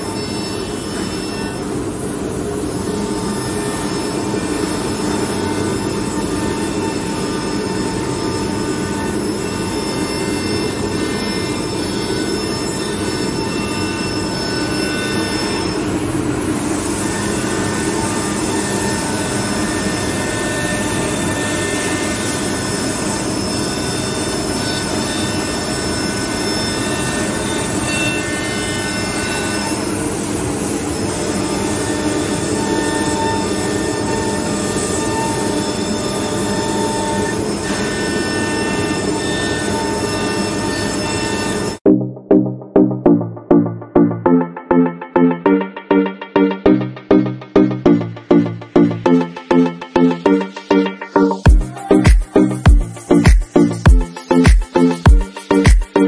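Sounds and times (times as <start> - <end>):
router cutting with high whine: 0.0 - 41.8.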